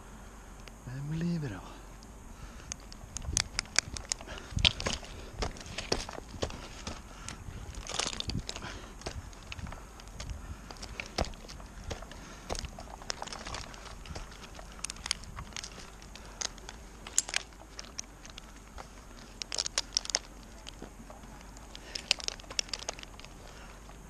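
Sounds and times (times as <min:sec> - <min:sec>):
climbing hardware clicking: 0:02.6 - 0:24.0.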